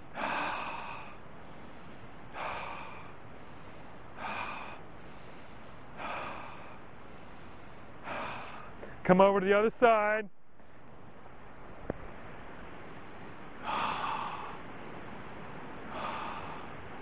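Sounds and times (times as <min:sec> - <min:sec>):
man breathing deeply: 0:00.0 - 0:09.0, 0:13.4 - 0:17.0
creek rushing: 0:00.0 - 0:17.0.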